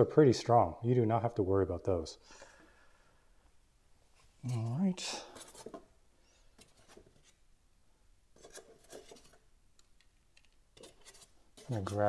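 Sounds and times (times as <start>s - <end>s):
soft clicks of small parts handled: 9.7s - 10.6s.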